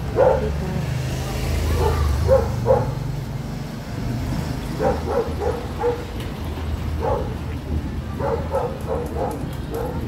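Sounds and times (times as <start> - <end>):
dog barking: 0.1 - 0.6, 1.7 - 3.0, 4.8 - 6.1, 7.0 - 7.4, 8.2 - 10.0.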